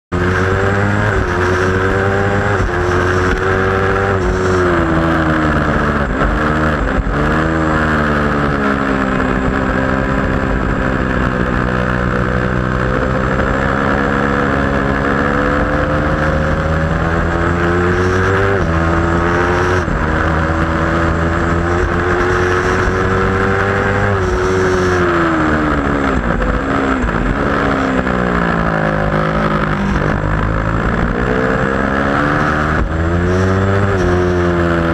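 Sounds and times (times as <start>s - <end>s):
motorcycle engine at racing speed: 0.1s - 34.9s
wind rush: 14.4s - 34.9s.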